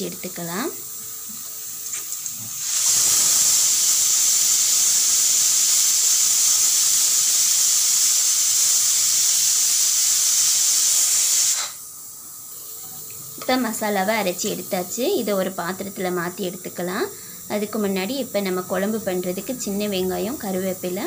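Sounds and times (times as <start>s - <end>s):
pressure cooker whistling: 2.6s - 11.9s.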